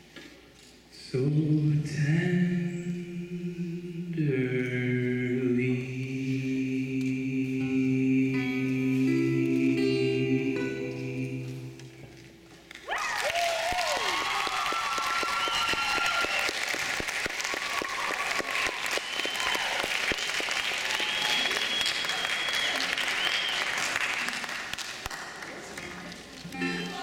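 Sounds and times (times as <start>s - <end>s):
acoustic guitar song: 7.1s - 12.6s
audience applause: 12.7s - 26.4s
cheering and whistling: 12.9s - 24.3s.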